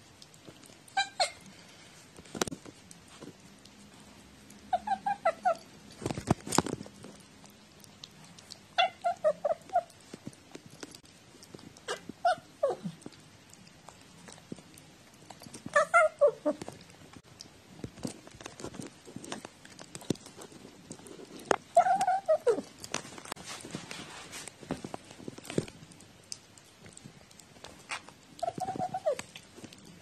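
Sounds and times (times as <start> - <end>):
cat meowing: 28.4 - 29.2.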